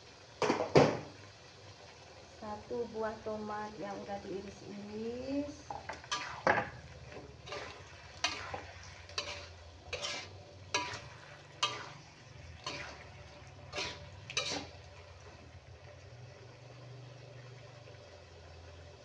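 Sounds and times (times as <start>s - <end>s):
food frying: 0.0s - 19.0s
metal spatula scraping wok: 5.5s - 15.6s.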